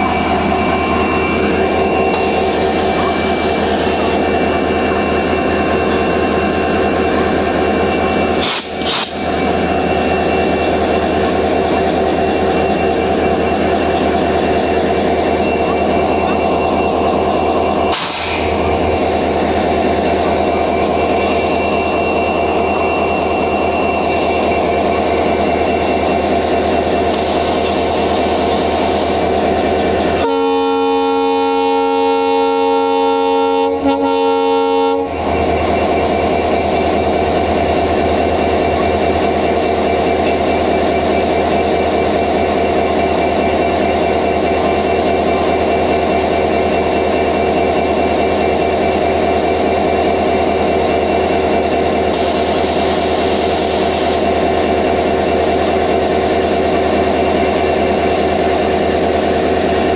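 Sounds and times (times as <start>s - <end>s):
locomotive horn blast: 30.2s - 35.1s.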